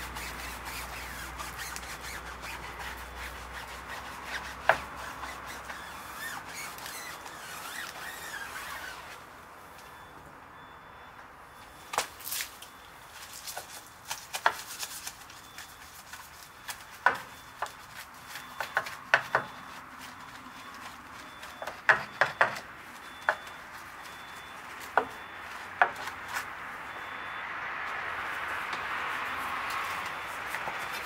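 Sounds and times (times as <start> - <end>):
brush scrubbing a wheel: 0.0 - 9.2, 13.2 - 21.6.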